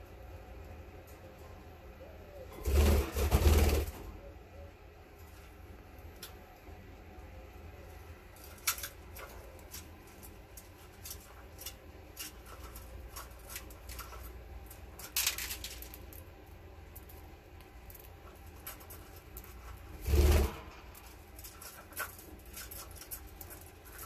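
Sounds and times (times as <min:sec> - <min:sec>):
bird cracking seeds clicks: 0:13.2 - 0:16.3.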